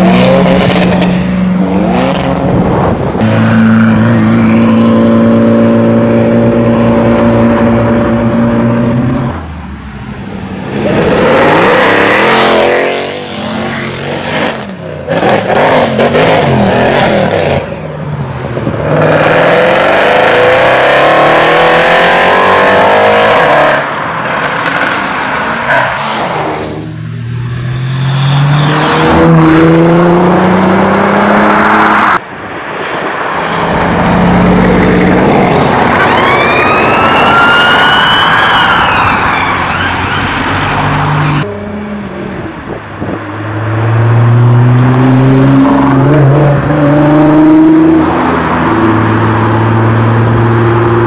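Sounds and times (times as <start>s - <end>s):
sports cars accelerating: 0.0s - 51.0s
police siren wailing: 35.6s - 40.6s.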